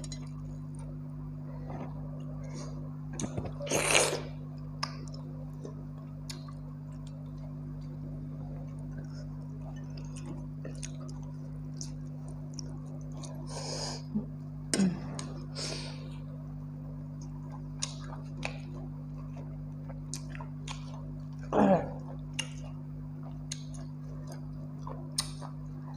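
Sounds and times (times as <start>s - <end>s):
steady low hum: 0.0s - 25.9s
chewing smacking clicks: 24.8s - 25.6s.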